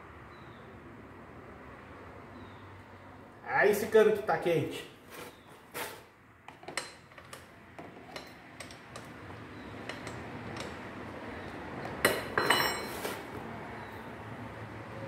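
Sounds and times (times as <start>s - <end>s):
wrench clicking on metal bolt: 8.1s - 9.1s, 9.8s - 10.8s
metal-on-metal clatter: 9.8s - 10.8s, 12.0s - 13.0s.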